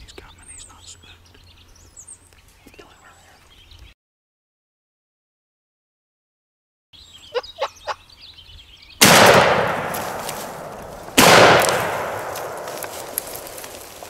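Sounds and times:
songbird chirping: 0.0s - 4.0s, 7.0s - 9.0s
shotgun shots echoing: 9.0s - 14.0s.

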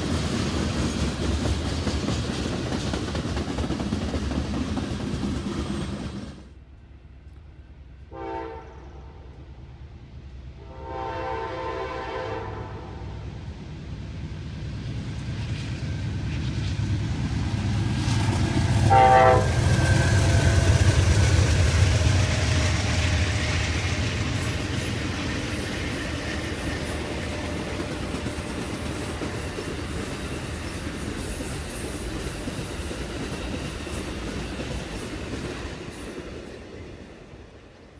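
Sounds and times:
train wheel clatter: 0.0s - 6.6s, 14.8s - 37.4s
train rumble: 0.0s - 37.9s
train horn blasts: 8.1s - 9.4s, 10.6s - 13.2s, 18.8s - 20.9s.

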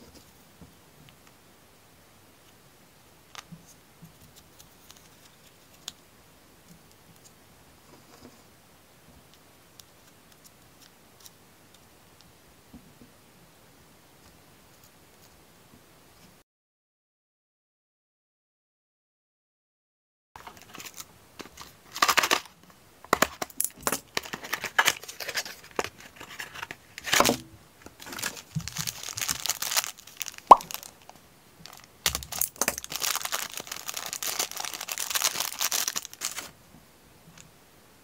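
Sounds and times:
plastic bag crinkling: 28.0s - 36.5s.

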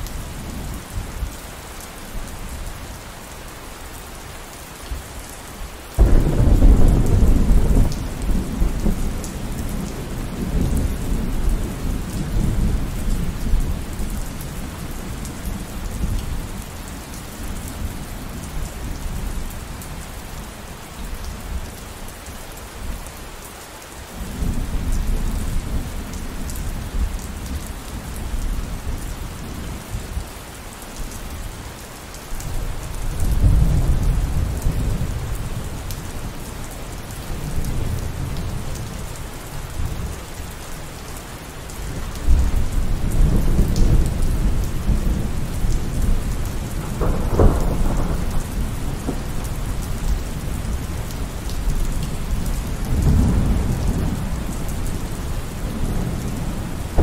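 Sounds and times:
steady rain: 0.0s - 57.0s
loud thunderclap: 6.0s - 9.2s, 46.8s - 49.4s
thunder rumbling: 6.0s - 13.9s, 42.3s - 57.0s.

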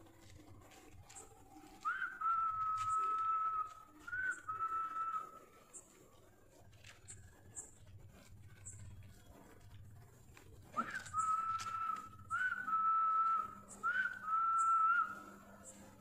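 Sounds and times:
person whistling long notes: 1.8s - 5.4s, 10.8s - 15.3s.

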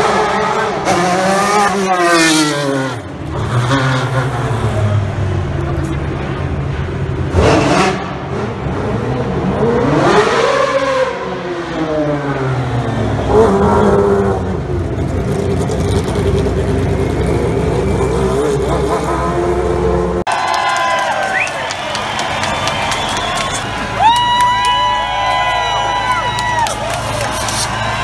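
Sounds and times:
racing car engine revving: 0.0s - 20.2s.

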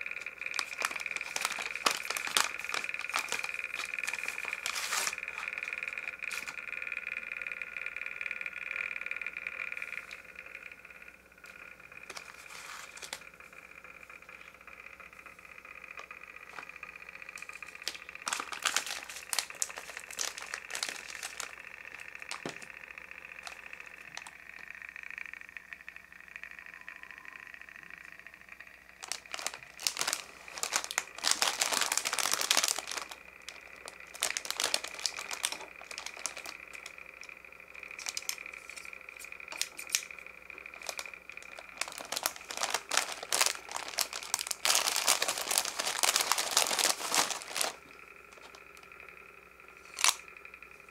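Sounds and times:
plastic wrapper crinkling: 0.0s - 6.9s, 11.5s - 13.4s, 15.9s - 24.4s, 29.0s - 48.9s, 49.9s - 50.2s
faint high whine: 0.0s - 50.9s.

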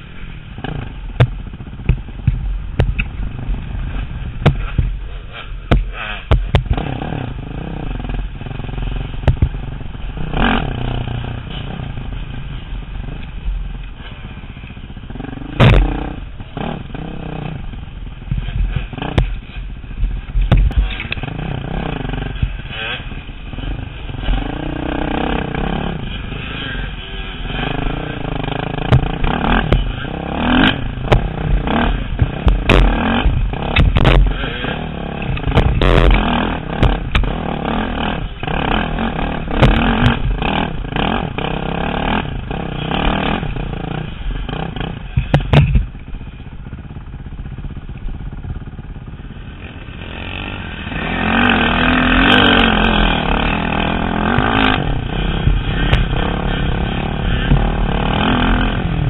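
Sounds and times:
dirt bike engines revving: 0.0s - 59.0s
sharp knocks and rattles: 0.6s - 7.2s, 8.0s - 17.1s, 18.2s - 26.6s, 27.5s - 49.1s.

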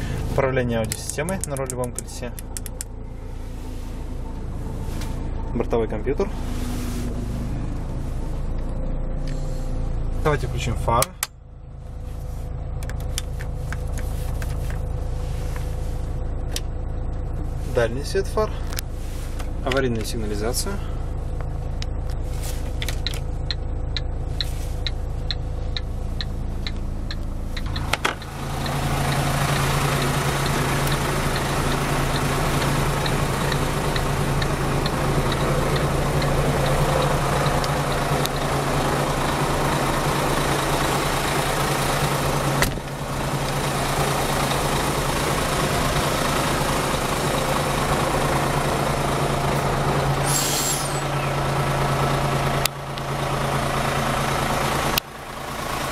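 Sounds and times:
diesel engine idling: 0.0s - 55.9s
hazard light relay ticking: 0.8s - 2.9s, 23.0s - 38.5s.

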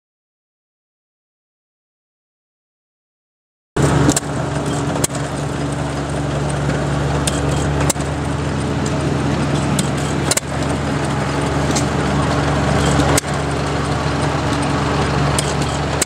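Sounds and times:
sharp engine pops: 3.8s - 5.4s, 7.2s - 8.1s, 9.6s - 13.5s
gas engine drone: 3.8s - 16.0s.

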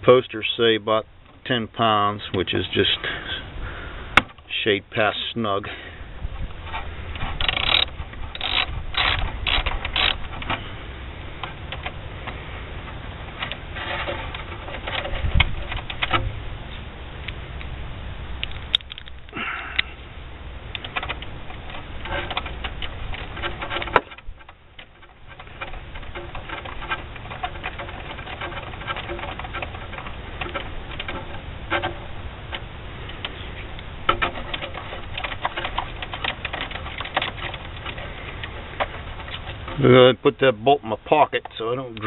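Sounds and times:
ratchet clicking: 7.2s - 10.6s.

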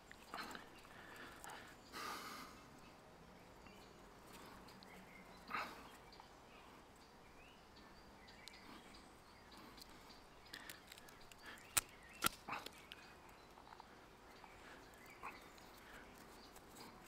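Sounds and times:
twig rustling: 10.5s - 13.9s.

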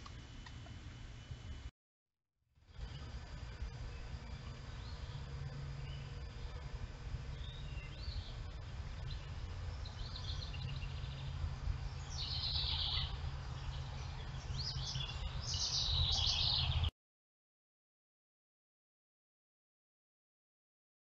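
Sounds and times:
birds chirping: 2.7s - 16.9s.

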